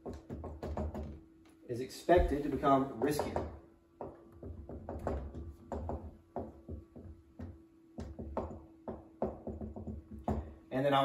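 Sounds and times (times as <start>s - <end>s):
marker writing on whiteboard: 2.2s - 3.4s
soft low knocks from board: 2.2s - 8.6s.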